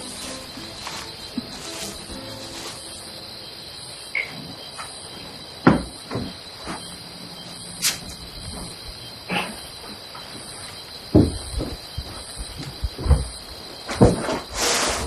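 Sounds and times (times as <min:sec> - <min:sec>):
crickets chirping: 0:00.0 - 0:15.0
knocks: 0:05.6 - 0:06.9, 0:11.1 - 0:14.5.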